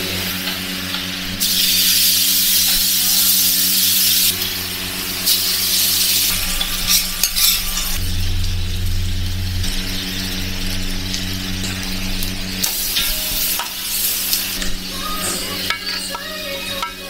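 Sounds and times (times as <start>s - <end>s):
food sizzling on a griddle: 0.0s - 17.0s
low hum: 4.3s - 17.0s
metal spatula scraping steel: 6.1s - 8.0s.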